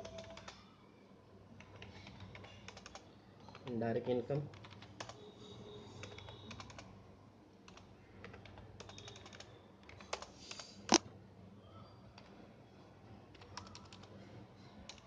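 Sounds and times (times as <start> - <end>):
computer keyboard typing: 0.0 - 0.6, 1.6 - 5.2, 5.8 - 6.9, 7.6 - 11.0, 13.3 - 14.2.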